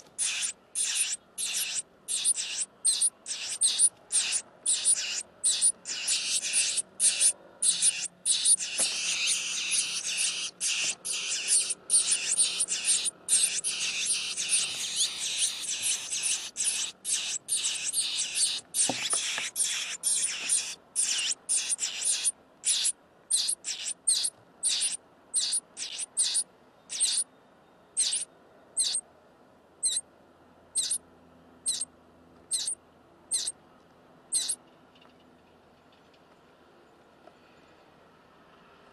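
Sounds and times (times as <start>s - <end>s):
nestlings begging calls: 0.0s - 27.3s, 28.0s - 29.0s, 29.8s - 30.0s, 30.8s - 31.0s, 31.6s - 31.9s, 32.5s - 33.6s, 34.3s - 34.6s.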